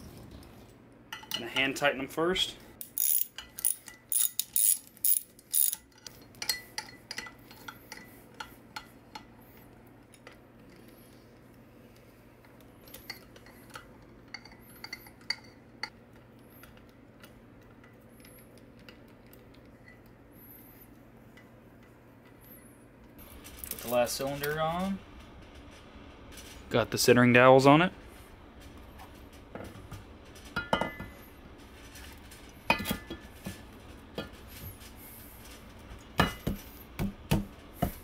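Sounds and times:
socket ratchet clicking: 0:02.8 - 0:05.8.

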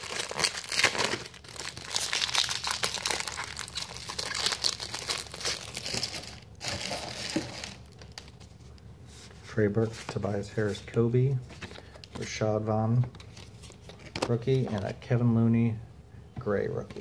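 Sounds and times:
foil wrapper tearing and crinkling: 0:00.0 - 0:08.2.

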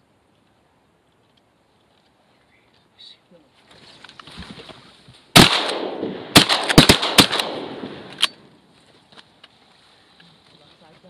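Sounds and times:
shotgun blasts: 0:05.3 - 0:08.4.

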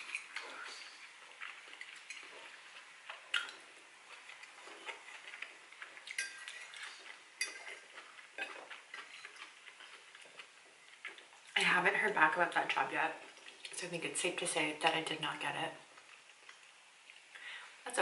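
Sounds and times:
fork clinking on ceramic plate: 0:06.1 - 0:07.8, 0:08.4 - 0:09.5.

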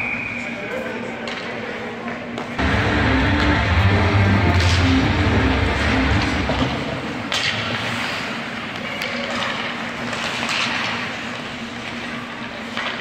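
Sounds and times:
skates scraping ice: 0:05.6 - 0:13.0
hockey stick clacking on puck: 0:08.7 - 0:13.0.

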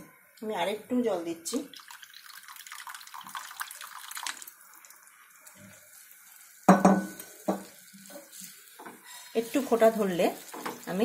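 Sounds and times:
water pouring into a pan: 0:01.5 - 0:11.0
wooden spatula scraping a pan: 0:07.1 - 0:11.0.

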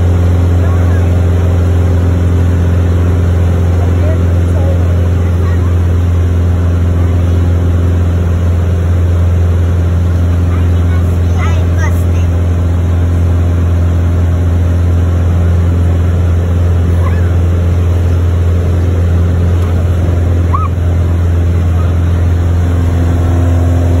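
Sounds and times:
airplane engine and propeller drone: 0:00.0 - 0:24.0.

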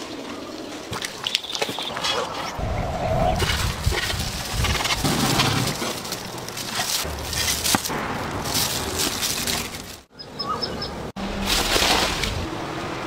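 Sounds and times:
crackling and crunching meat: 0:03.4 - 0:10.1.

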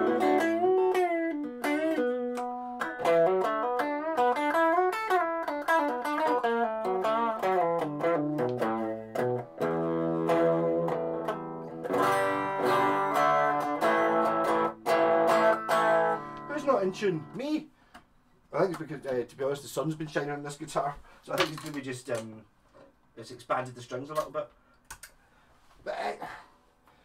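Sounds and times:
clean electric guitar lead lines: 0:00.0 - 0:17.4
electric guitar strummed chords: 0:00.0 - 0:17.4.

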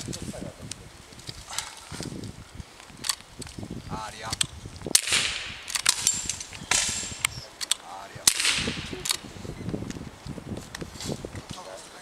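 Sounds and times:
air rifle shots: 0:04.9 - 0:07.3, 0:08.2 - 0:09.2.

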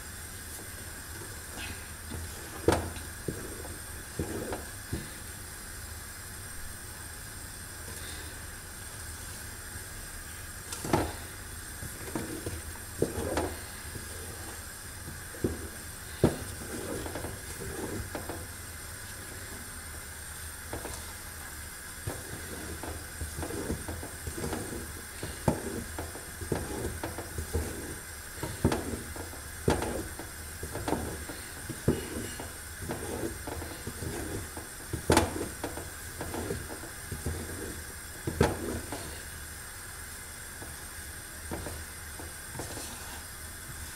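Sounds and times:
steady hiss: 0:00.0 - 0:43.9
wooden spoon scraping metal pot: 0:11.9 - 0:18.6, 0:22.1 - 0:39.2.

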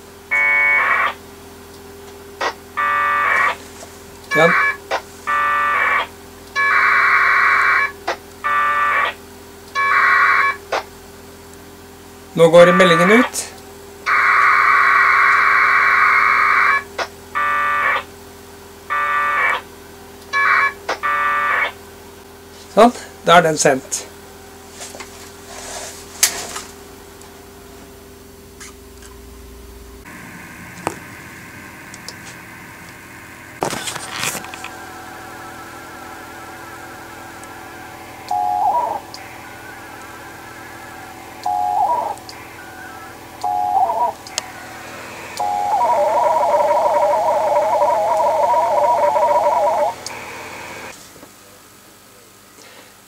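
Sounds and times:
packet radio data bursts: 0:04.3 - 0:09.2, 0:12.4 - 0:13.5, 0:14.1 - 0:18.1, 0:33.6 - 0:50.9
low hum: 0:27.2 - 0:51.0.

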